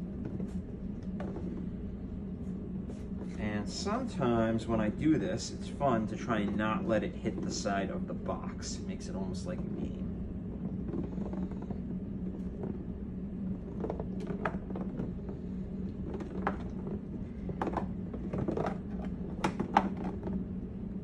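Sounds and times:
ball rolling in cardboard box: 0.0 - 20.7
steady low hum: 0.0 - 21.0
ball knocking cardboard: 0.2 - 1.7, 6.0 - 8.6, 9.3 - 12.9, 13.5 - 20.4.

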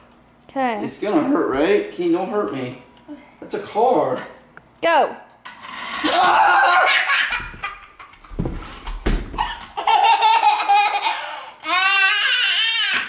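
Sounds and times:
child laughing: 6.1 - 8.2, 9.4 - 13.0.

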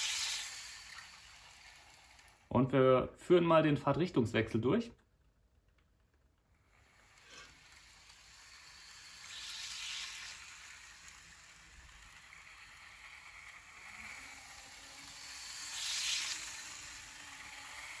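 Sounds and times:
model train whirring on rails: 0.0 - 2.5, 6.5 - 18.0.

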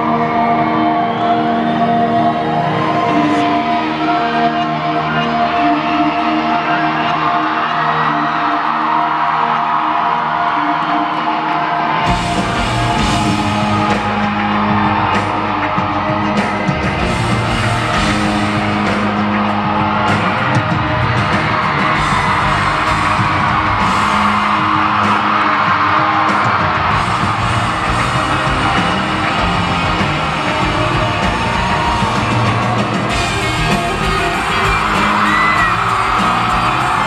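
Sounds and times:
fans yelling and whooping: 0.0 - 37.0
country-rock band playing: 11.4 - 37.0.

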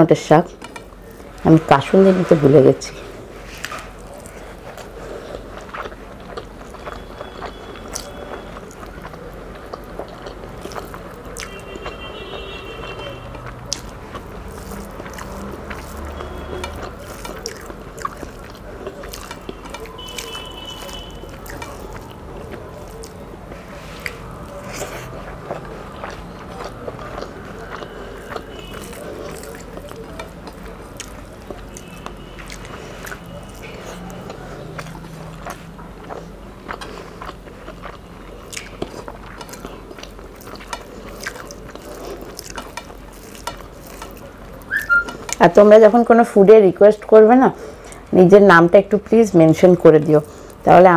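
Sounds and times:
chewing with wet mouth sounds: 3.4 - 45.8, 48.9 - 50.9
fingers mixing rice on plate: 13.4 - 38.0, 38.6 - 45.4.

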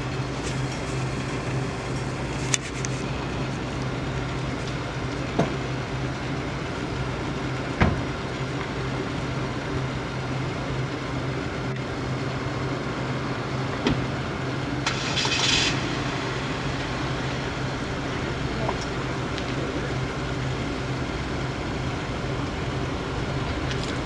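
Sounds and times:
machinery humming: 0.0 - 24.0
brief hiss: 14.8 - 17.8.

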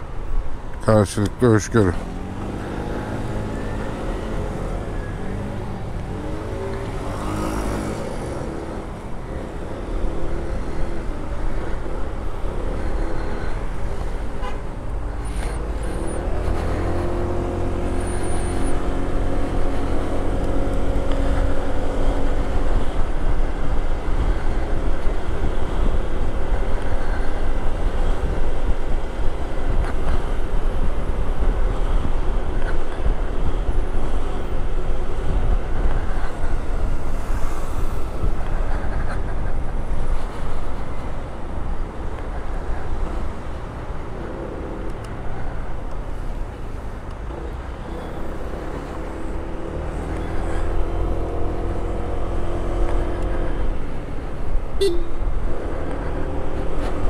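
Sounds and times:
road traffic: 0.0 - 57.0
wind noise on microphone: 10.2 - 44.1.

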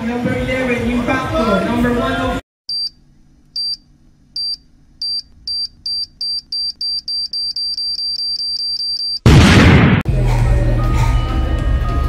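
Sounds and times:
electronic beeps: 4.4 - 9.2.

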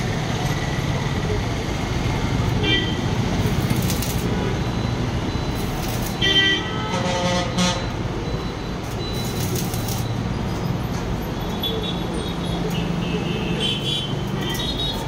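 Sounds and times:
road traffic noise: 0.0 - 15.0
crackle of arc welding: 3.0 - 4.7, 5.5 - 6.6, 8.9 - 10.2
vehicle horn tooting: 6.2 - 7.9.

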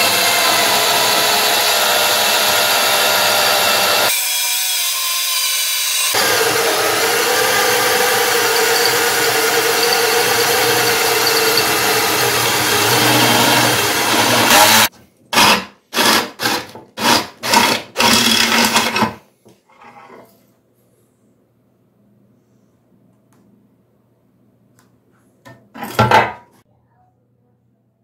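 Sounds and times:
power drill cutting sheet metal: 0.0 - 18.9.

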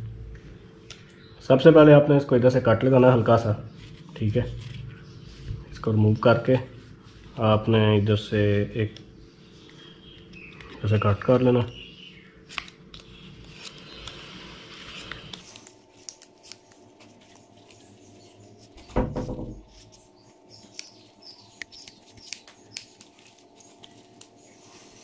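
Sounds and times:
scissors snipping rubber: 21.6 - 23.1.

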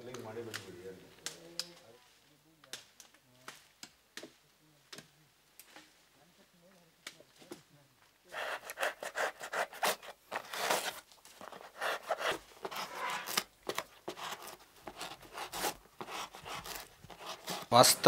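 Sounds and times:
knife scraping and cutting: 8.3 - 17.7.

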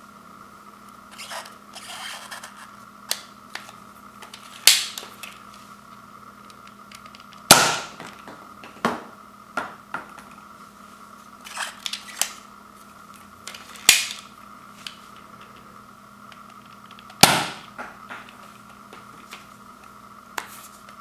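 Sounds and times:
toy blaster plastic snaps: 4.6 - 5.0, 13.5 - 14.3.

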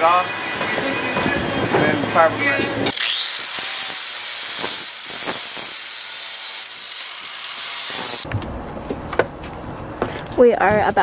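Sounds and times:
angle grinder whining: 0.0 - 8.3.

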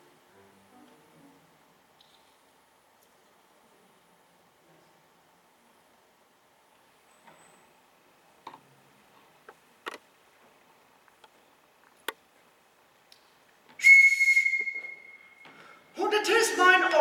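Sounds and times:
faint clicks and knocks: 8.4 - 13.8
high whistle blast: 13.8 - 15.8.

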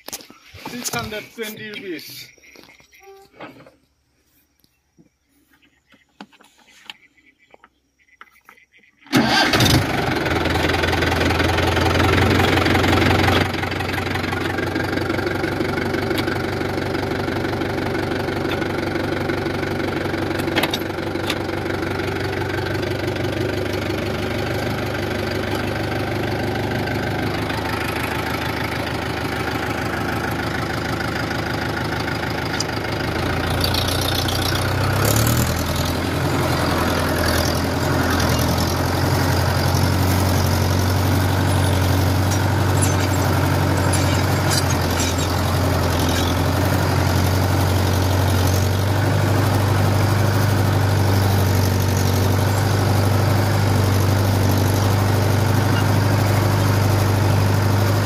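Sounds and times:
tractor diesel engine knocking: 9.1 - 58.0.

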